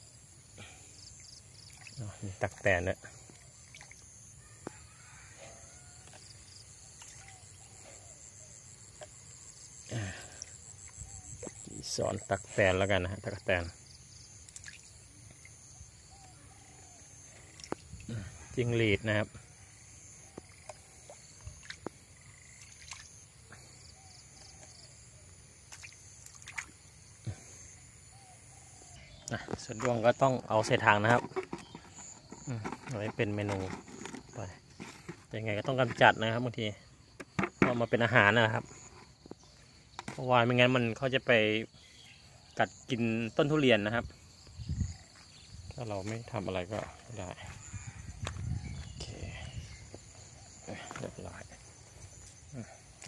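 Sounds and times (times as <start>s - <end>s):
high-pitched insect trill: 0.0s - 53.0s
water dripping in a plastic basin: 3.3s - 4.1s, 14.5s - 15.5s, 17.5s - 18.2s, 25.7s - 26.8s.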